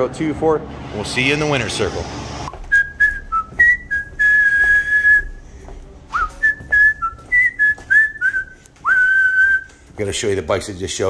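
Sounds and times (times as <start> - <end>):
person whistling a tune: 2.7 - 5.4, 6.2 - 9.7.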